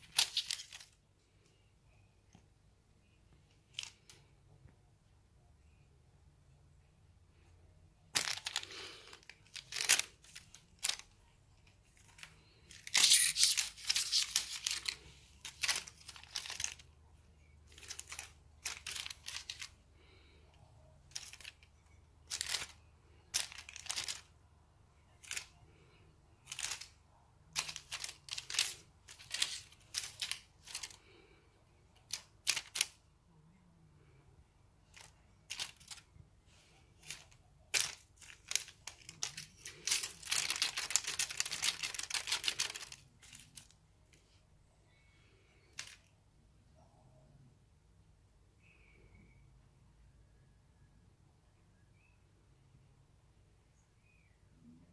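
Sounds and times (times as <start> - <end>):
crinkly cat toy rustling: 0.0 - 1.0, 3.4 - 4.3, 8.1 - 24.4, 25.0 - 33.1, 34.8 - 46.1.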